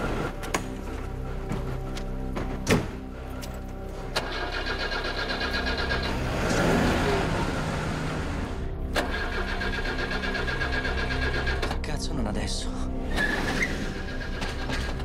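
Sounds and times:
music drone: 0.0 - 11.9
car engine running: 4.2 - 11.7.

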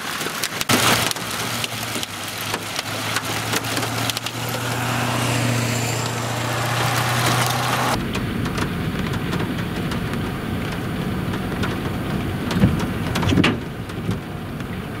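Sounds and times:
tyres hissing on wet pavement: 0.0 - 8.0
low traffic rumble: 0.7 - 15.0.

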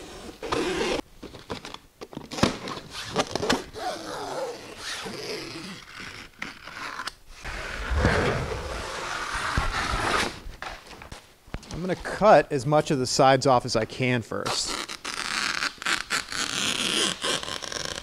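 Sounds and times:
fabric ripping and scraping: 3.0 - 10.4, 14.5 - 18.0.

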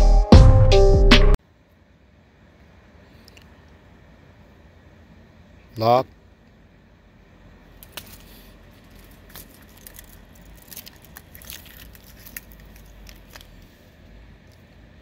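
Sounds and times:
keys clinking and rattling: 8.0 - 13.5.

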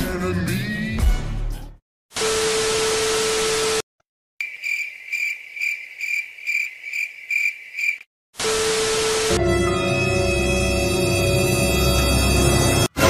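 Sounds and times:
cricket chirping: 4.4 - 8.1.

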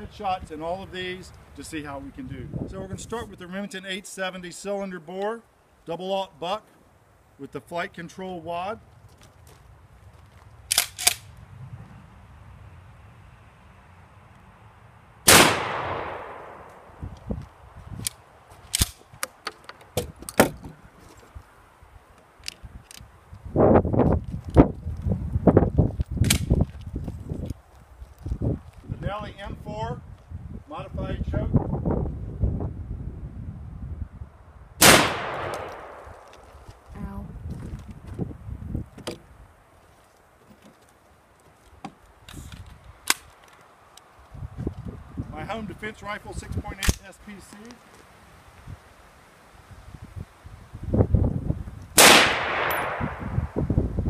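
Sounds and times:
shotguns clicking and clacking: 10.7 - 11.3, 18.0 - 20.6
shotgun blast echo: 15.3 - 16.9, 34.8 - 36.3, 52.0 - 53.6.

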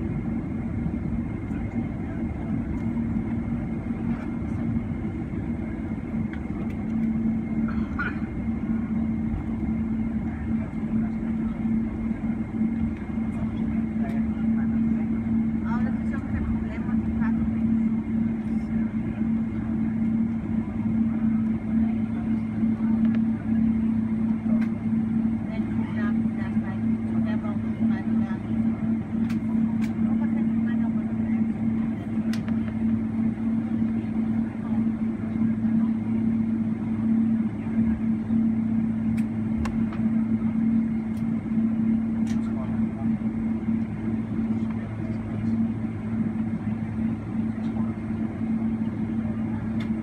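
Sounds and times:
airliner rolling rumble: 0.0 - 50.0
jet engines idling hum: 0.0 - 50.0.

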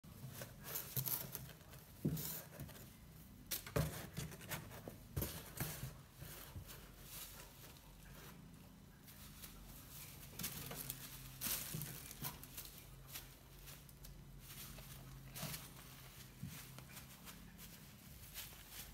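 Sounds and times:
bubble wrap crinkling: 9.2 - 18.9.

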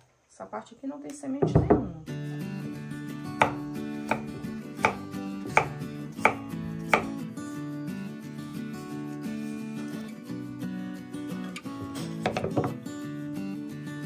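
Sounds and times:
soft guitar music: 1.8 - 14.0
knife chopping on wooden board: 3.4 - 7.2.

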